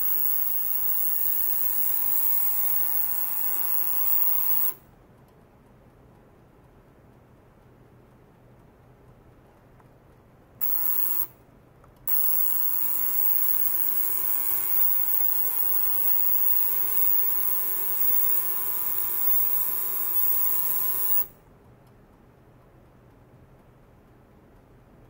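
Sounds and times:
ultrasonic cleaner buzzing drone: 0.0 - 4.7, 12.1 - 21.3.

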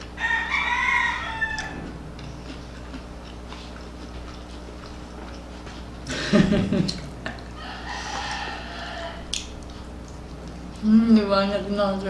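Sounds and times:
faint steady hum: 0.0 - 12.0
rooster crowing: 0.1 - 2.3, 7.6 - 9.4.

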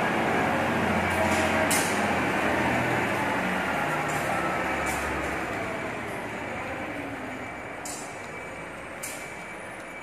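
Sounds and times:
diesel engine running: 0.0 - 10.0.

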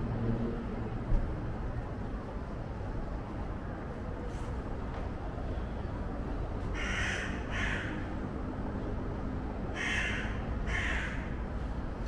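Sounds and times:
crow cawing: 6.8 - 8.1, 9.7 - 11.4.

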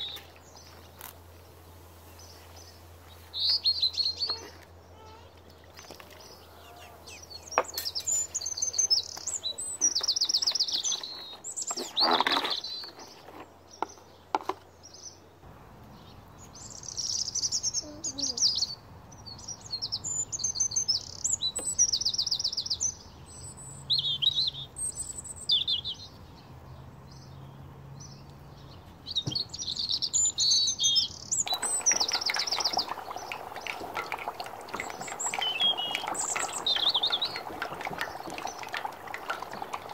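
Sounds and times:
songbirds chirping and trilling: 0.0 - 39.9
fish frying in hot oil: 31.4 - 39.9.

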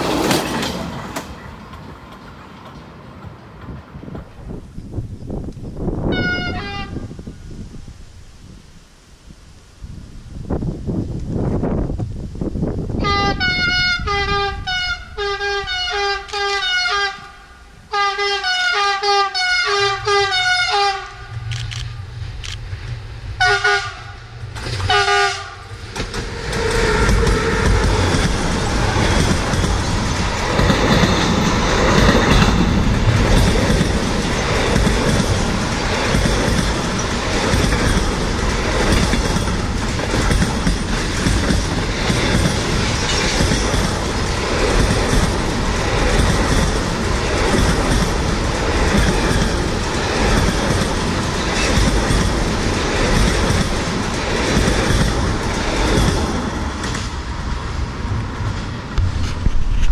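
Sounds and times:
freight train wheels clattering on rails: 0.0 - 4.8, 24.4 - 59.9.

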